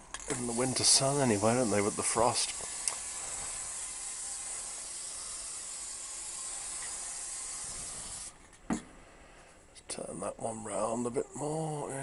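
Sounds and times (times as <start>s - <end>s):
spray can hissing: 0.2s - 8.4s.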